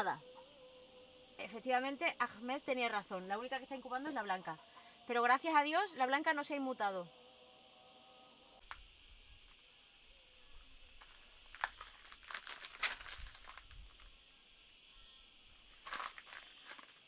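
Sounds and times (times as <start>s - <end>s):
insects droning: 0.0s - 17.0s
rustles and clicks: 11.0s - 14.1s, 15.7s - 17.0s.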